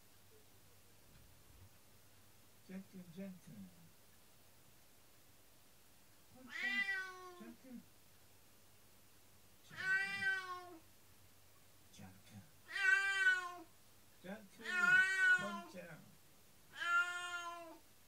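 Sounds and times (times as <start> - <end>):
cat meowing: 6.4 - 7.6, 9.7 - 10.8, 12.6 - 13.7, 14.6 - 15.7, 16.7 - 17.8.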